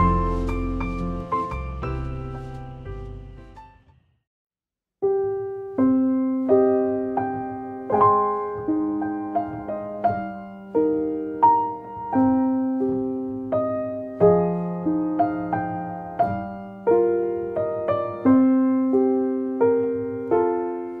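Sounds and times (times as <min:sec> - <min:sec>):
gentle solo piano: 0:00.0 - 0:03.7, 0:05.0 - 0:21.0.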